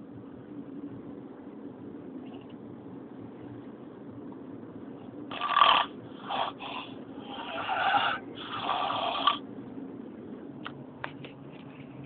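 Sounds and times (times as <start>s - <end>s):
man snoring: 5.3s - 9.4s.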